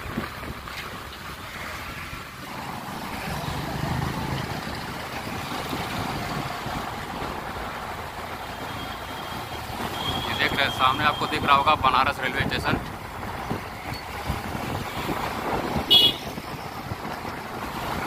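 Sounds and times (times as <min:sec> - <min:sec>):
traffic engines and tyres: 0:00.0 - 0:18.0
wind on microphone: 0:12.2 - 0:18.0.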